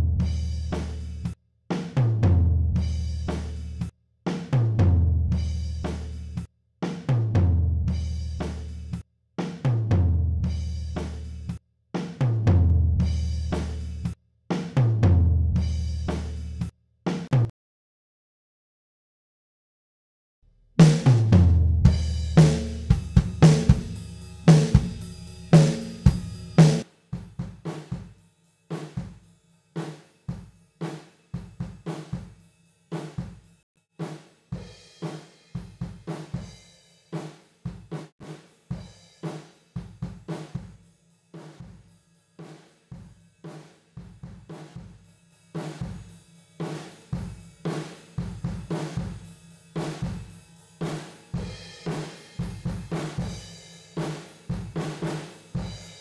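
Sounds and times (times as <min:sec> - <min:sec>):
snare drum: 0:17.1 - 0:17.5, 0:20.8 - 0:29.2, 0:29.8 - 0:32.4, 0:33.0 - 0:33.4, 0:34.0 - 0:36.5, 0:37.2 - 0:40.8, 0:41.4 - 0:41.8, 0:43.5 - 0:45.0, 0:45.6 - 0:49.2, 0:49.8 - 0:56.0
cymbals: 0:21.9 - 0:33.4, 0:41.4 - 0:56.0
hi-hat: 0:22.0 - 0:26.8
kick drum: 0:22.9 - 0:24.0.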